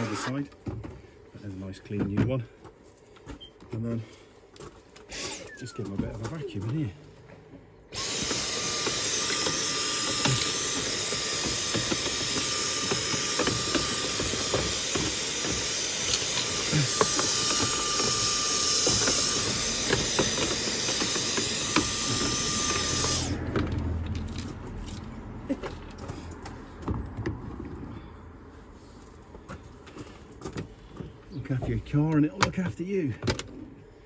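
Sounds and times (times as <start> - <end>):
handheld vacuum cleaner running: 7.9 - 23.7.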